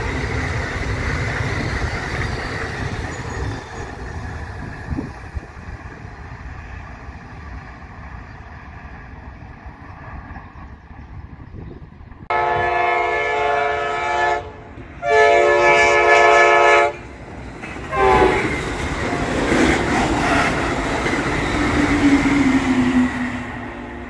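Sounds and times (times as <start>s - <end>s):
train wheels rumbling on rails: 0.0s - 13.1s, 14.6s - 24.0s
train horn blasts: 12.3s - 17.0s, 17.8s - 19.2s.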